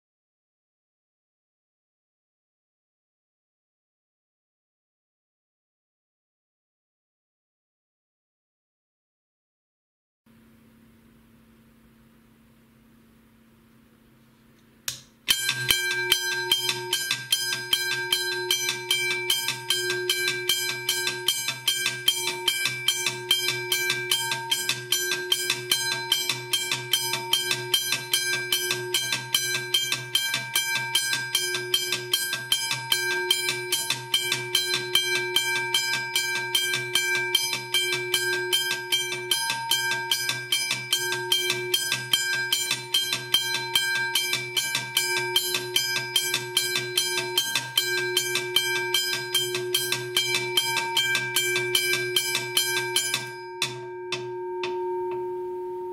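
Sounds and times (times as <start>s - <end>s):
railroad crossing bell ringing: 15.3s - 55.9s.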